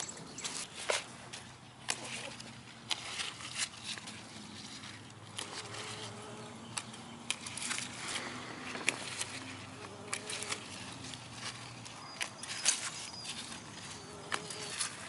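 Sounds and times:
flying insect buzzing: 5.5s - 6.6s.

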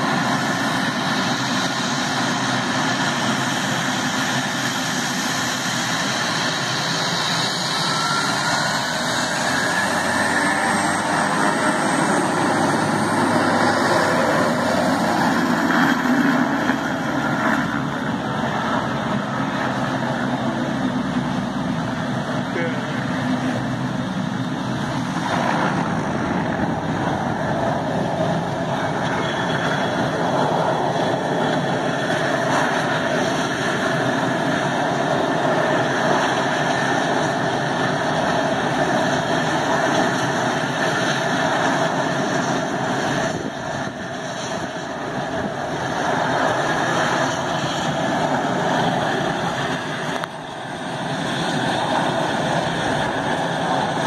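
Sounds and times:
plane engine running: 0.0s - 54.0s.

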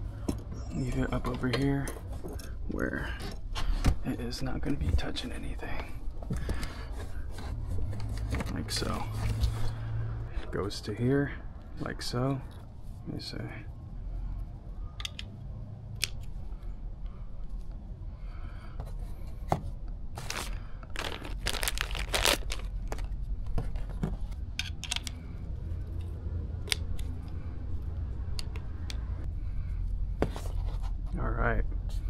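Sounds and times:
plastic bag crinkling: 20.2s - 23.1s
plastic parts clicking on board: 24.6s - 25.2s.

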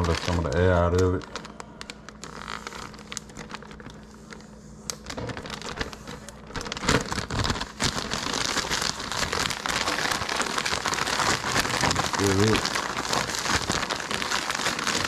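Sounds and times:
soft crinkles and clicks: 0.0s - 15.0s
oil sizzling and popping: 7.0s - 15.0s.

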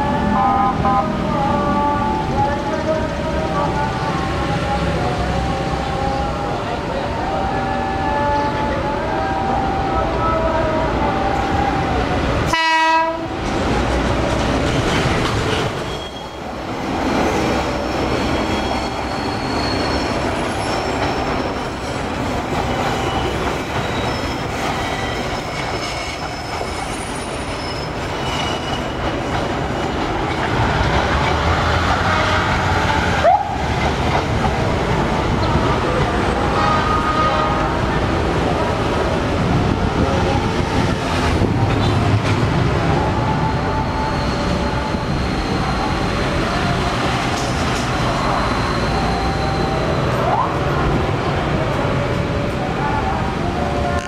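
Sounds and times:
train wheels rumbling on track: 0.0s - 54.0s
train horn blast: 12.5s - 13.4s, 36.4s - 37.9s.

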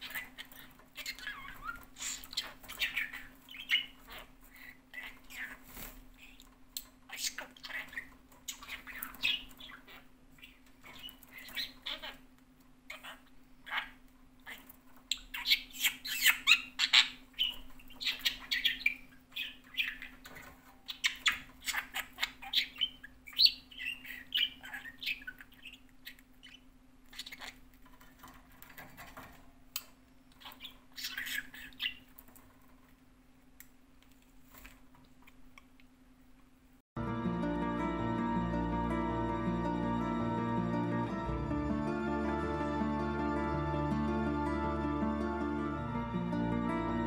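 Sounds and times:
budgerigar chattering and squawking: 0.0s - 6.4s, 7.1s - 12.2s, 12.9s - 28.4s, 29.8s - 32.1s.

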